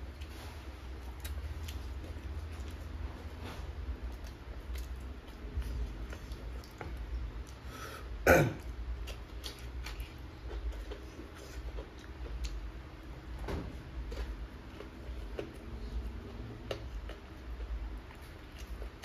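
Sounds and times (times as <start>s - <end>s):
chewing and mouth smacking: 0.0s - 7.7s, 8.6s - 19.0s
loud sudden throat sound: 8.2s - 8.6s.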